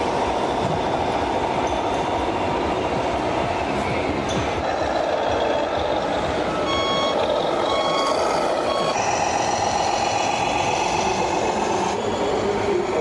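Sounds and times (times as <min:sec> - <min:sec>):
model truck running noise: 0:00.0 - 0:13.0
steady pitched hum: 0:00.0 - 0:13.0
reversing beeper: 0:06.4 - 0:12.9.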